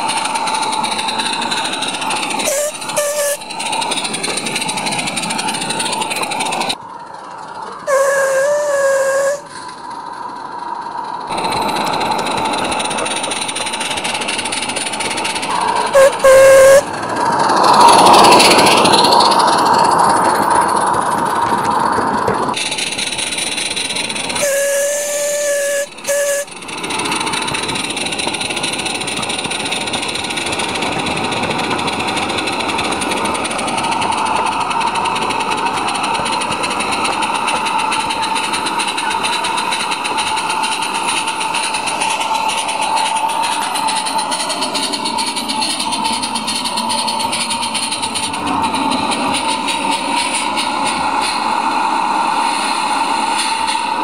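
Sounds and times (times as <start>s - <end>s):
locomotive wheel noise: 0.0s - 54.0s
steam hiss: 0.0s - 54.0s
steam whistle toots: 0.2s - 4.4s, 7.8s - 9.7s, 15.0s - 17.0s, 23.8s - 27.4s.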